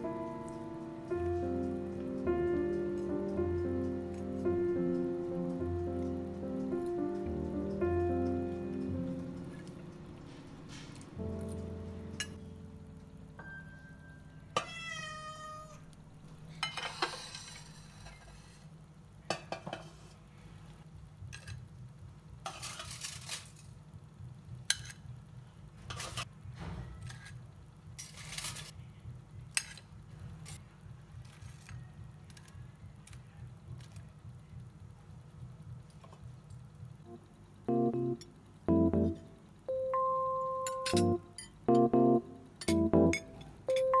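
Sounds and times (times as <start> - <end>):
low steady hum: 0.0 - 14.9, 27.5 - 44.0.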